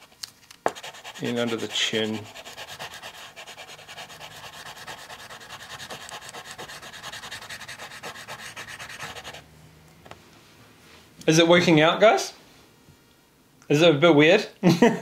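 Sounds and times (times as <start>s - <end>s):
chocolate scraping on paper: 0.7s - 9.4s.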